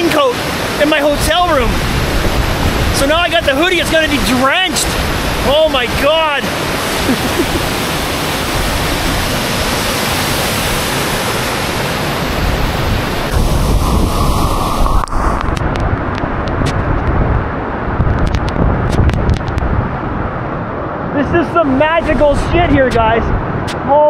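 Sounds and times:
waterfall roaring: 0.0 - 24.0.

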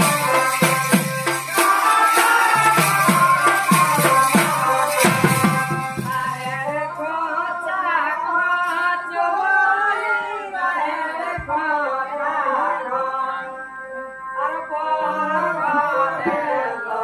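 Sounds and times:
drum beats: 0.0 - 6.9
jingling percussion: 0.0 - 7.0
person singing: 14.4 - 17.0.

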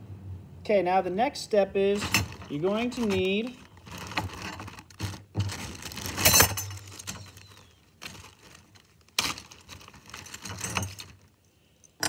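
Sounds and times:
plastic bag crinkling: 1.9 - 11.4
small metal pieces clinking: 2.0 - 11.3.

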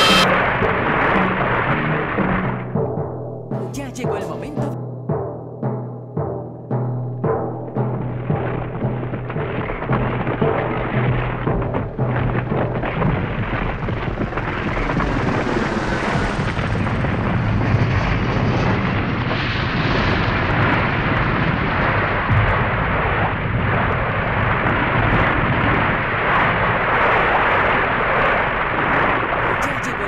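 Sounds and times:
low hum: 0.0 - 3.8, 7.0 - 27.9
industrial noise music: 0.0 - 13.1.

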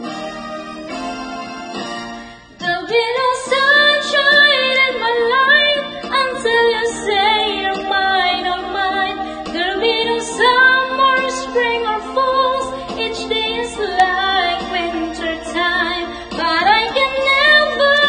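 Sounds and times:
woman singing into microphone: 2.6 - 18.0.

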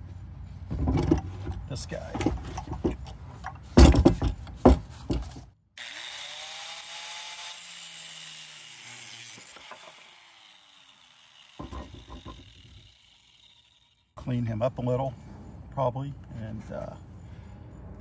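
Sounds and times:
metal parts clanking on wood: 0.7 - 5.4, 11.6 - 12.5
angle grinder winding down: 5.8 - 14.1
knocks: 11.6 - 12.4.

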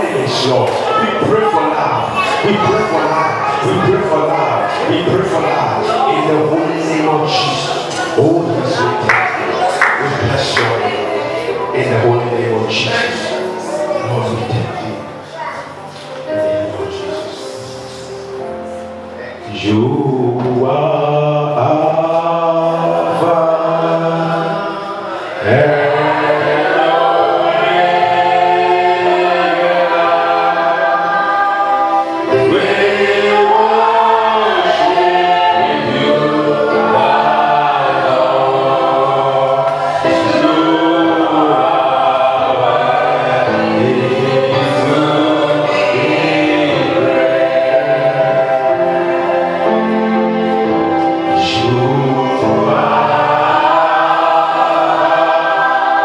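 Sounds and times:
congregation singing: 0.0 - 56.0
lead singer on microphone: 16.2 - 54.8.

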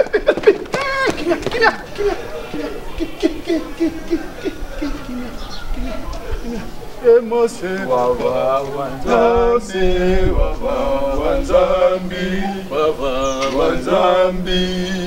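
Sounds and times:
man singing: 7.0 - 15.0.

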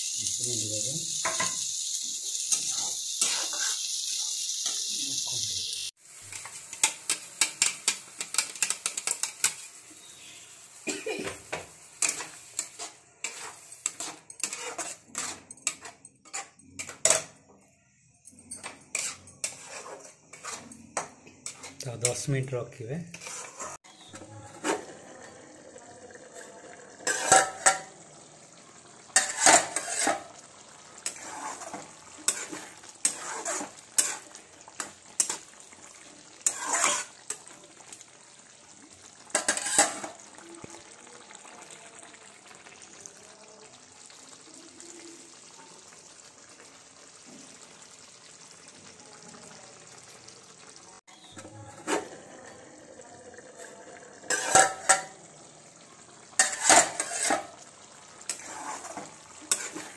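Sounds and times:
curry sizzling: 0.0 - 59.9
metal spatula scraping a pan: 0.7 - 5.4, 6.1 - 10.6, 11.2 - 17.4, 18.6 - 25.4, 26.3 - 38.1, 39.1 - 40.8, 51.1 - 52.7, 53.4 - 55.6, 56.2 - 59.9.

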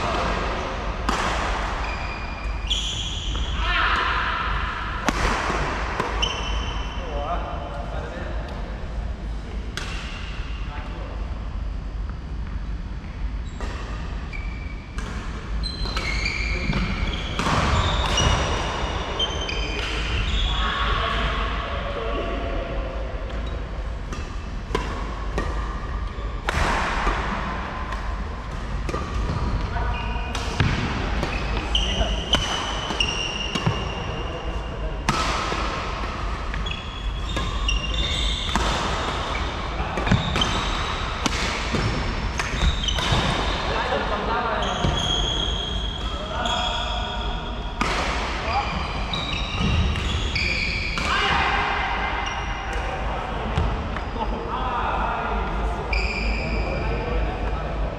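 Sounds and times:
racket hitting shuttlecock: 0.1 - 1.9, 5.0 - 6.3, 30.3 - 34.0, 35.0 - 43.6
sports shoes squeaking on court: 6.2 - 7.0, 14.3 - 20.6, 29.0 - 34.3, 36.5 - 41.5, 42.4 - 44.0, 44.6 - 47.3, 48.4 - 51.0, 55.9 - 56.6.

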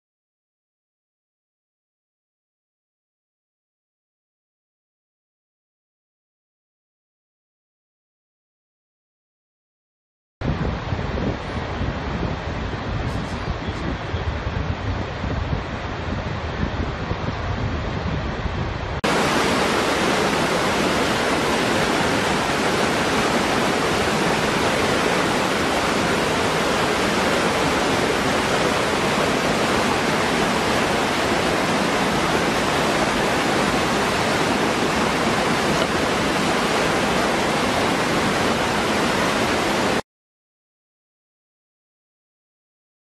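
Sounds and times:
waterfall splashing into pool: 19.0 - 40.0.

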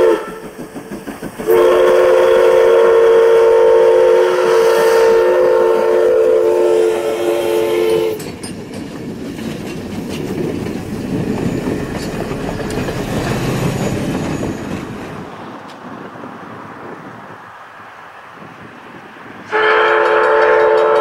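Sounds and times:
wheels clicking over rail joints: 0.0 - 2.4, 8.0 - 16.0, 19.7 - 21.0
train cars rumbling: 0.0 - 21.0.

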